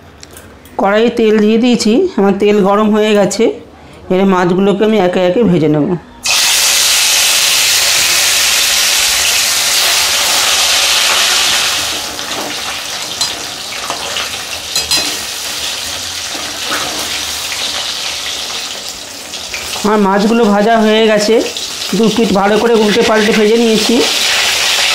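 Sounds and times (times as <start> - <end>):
fish sizzling in hot oil: 6.2 - 24.9
metal spatula clinking on pan: 13.2 - 14.0, 14.7 - 15.3.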